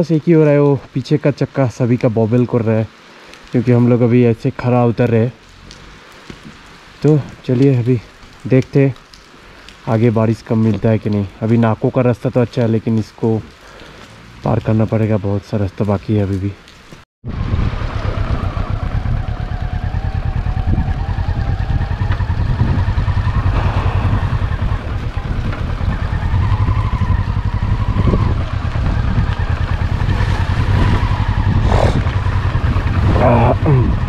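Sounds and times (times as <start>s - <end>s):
motorcycle engine running: 17.4s - 34.0s.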